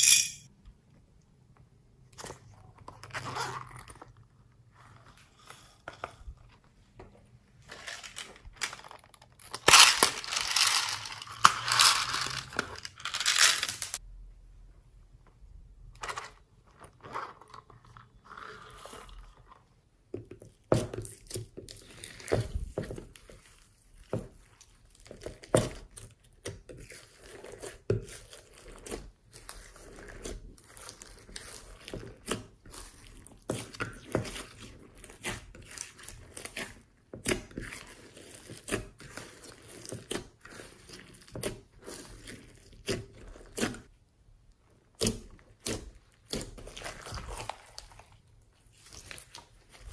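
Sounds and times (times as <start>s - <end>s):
hands squelching slime: 20.4s - 49.9s.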